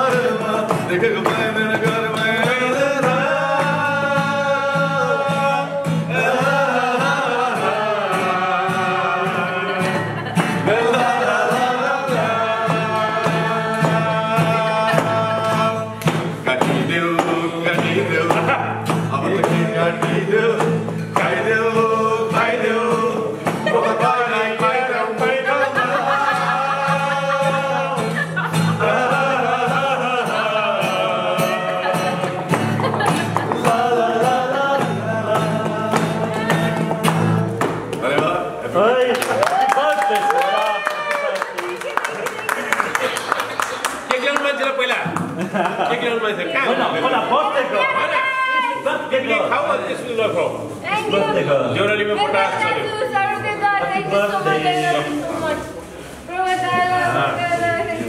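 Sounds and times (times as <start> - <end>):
strummed acoustic guitar: 0.0 - 39.0
man singing: 0.0 - 40.4
hand claps: 9.8 - 10.7, 14.9 - 21.4, 32.1 - 33.8, 35.6 - 38.4, 39.0 - 46.0.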